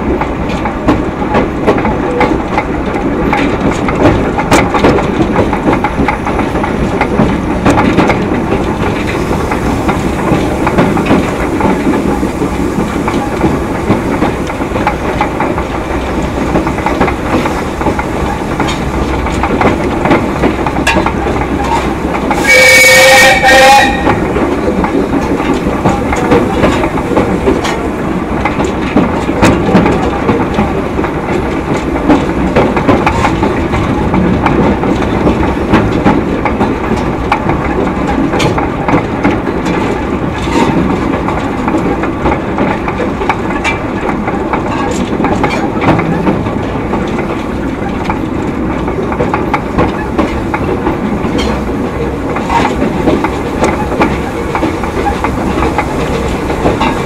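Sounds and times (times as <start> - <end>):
train wheels rumbling: 0.0 - 57.0
clicks and knocks from rails: 9.9 - 22.3, 28.4 - 57.0.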